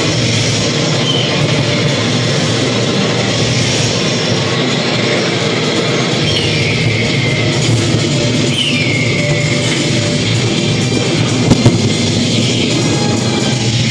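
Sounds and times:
ride rumbling and clattering on track: 7.0s - 13.9s.

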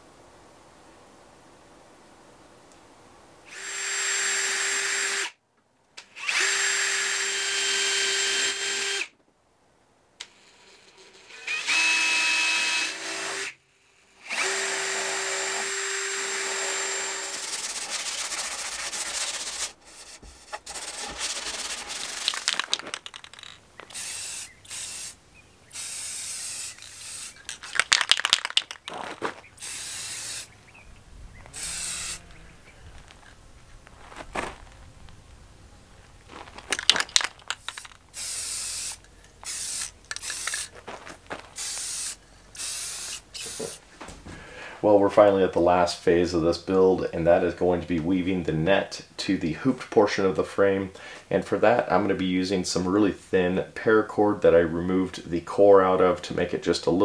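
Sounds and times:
irregular noisy bursts: 2.7s - 9.2s, 10.2s - 45.2s
cordless drill whining: 3.5s - 5.4s, 6.0s - 9.1s, 10.2s - 27.8s, 29.6s - 30.5s, 31.4s - 32.4s, 37.8s - 40.7s, 41.6s - 43.8s
aerosol spray can hissing: 23.9s - 27.5s, 29.6s - 30.5s, 31.6s - 32.2s, 38.2s - 40.7s, 41.6s - 43.8s.

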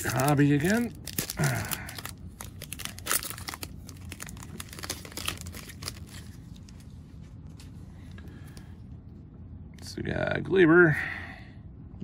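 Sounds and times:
foil wrapper crinkling and tearing: 0.0s - 6.9s.

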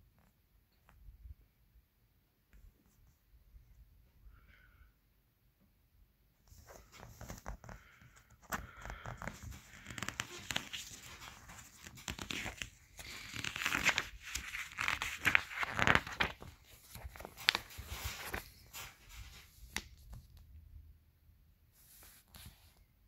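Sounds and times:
catalog pages rustling: 6.5s - 20.4s.

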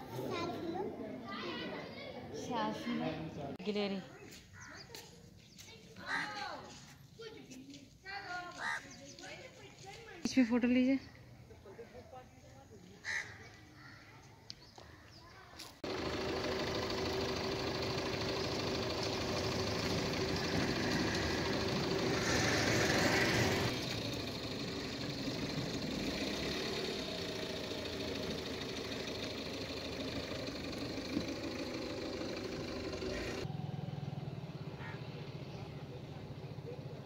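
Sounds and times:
engine running: 15.8s - 37.0s.

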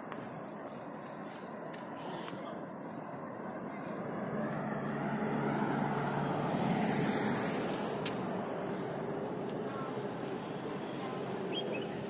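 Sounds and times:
car passing by: 4.0s - 10.7s.

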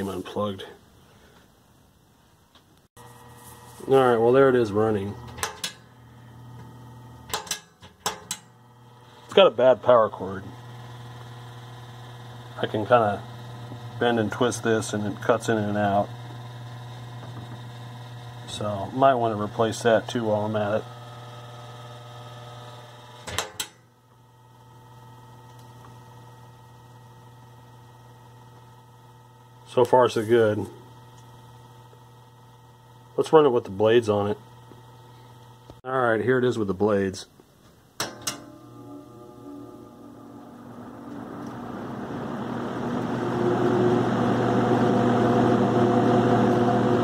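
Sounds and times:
fan motor humming: 3.0s - 23.1s, 38.0s - 47.0s.

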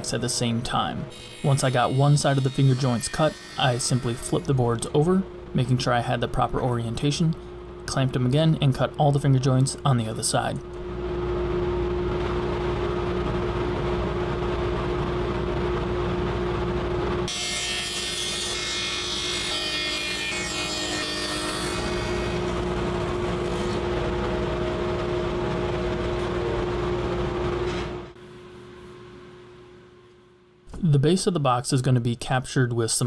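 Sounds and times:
saw cutting through plywood: 1.1s - 4.6s, 17.3s - 22.6s
table saw whining: 1.1s - 5.0s, 17.3s - 24.0s.

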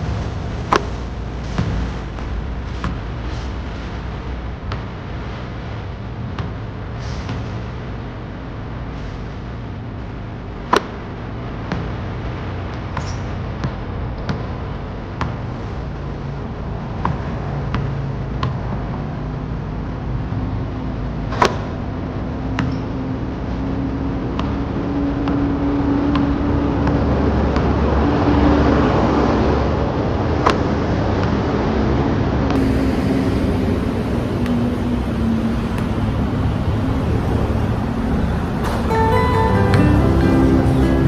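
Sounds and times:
road traffic rumble: 0.0s - 41.0s
bus passing: 23.6s - 41.0s
guitar music: 32.6s - 41.0s.

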